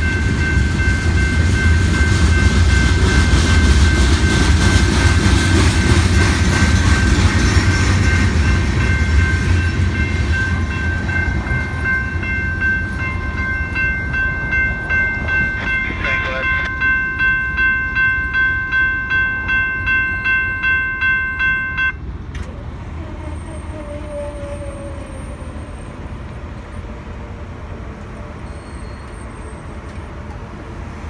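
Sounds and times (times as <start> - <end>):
crossing warning bell ringing: 0.0 - 22.2.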